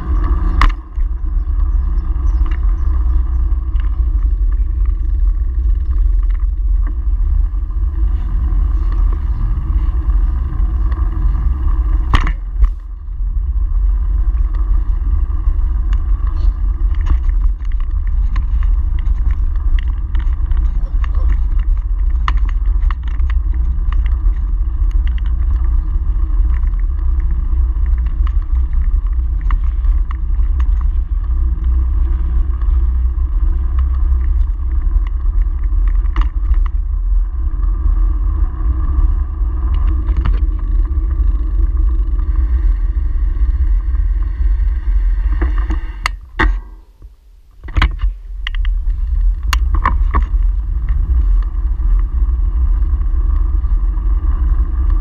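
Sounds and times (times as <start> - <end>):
bike knocks and rattles: 0.0 - 37.0, 45.2 - 52.2
bicycle road rumble: 0.0 - 55.0
wind buffeting: 0.0 - 55.0.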